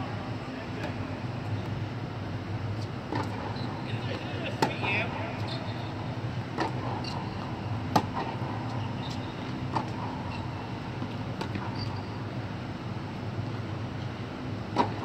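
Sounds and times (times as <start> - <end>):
tennis racquets hitting ball: 3.0 - 5.5, 6.5 - 8.5, 9.1 - 10.4, 11.0 - 11.8, 14.7 - 15.0.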